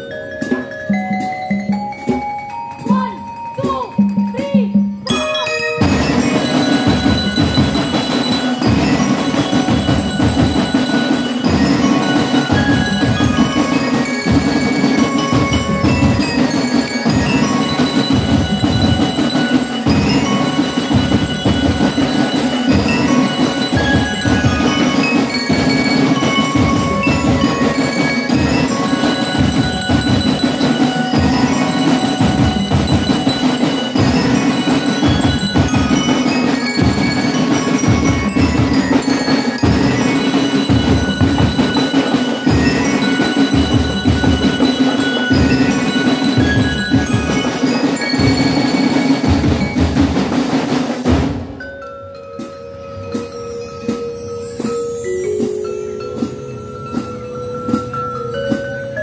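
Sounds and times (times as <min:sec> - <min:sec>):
glockenspiel melody: 0:00.0 - 0:59.0
snare and bass drums: 0:05.7 - 0:51.6.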